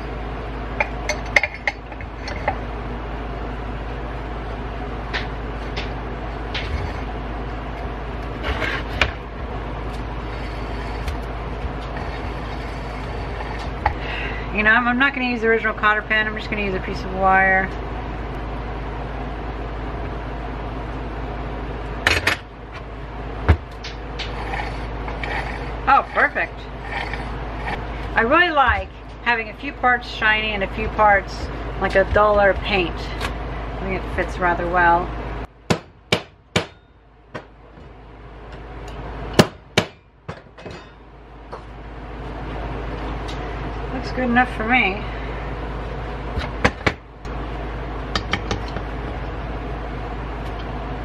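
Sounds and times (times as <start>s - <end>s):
steady low hum: 0.0s - 51.0s
hammer striking metal: 35.7s - 36.9s.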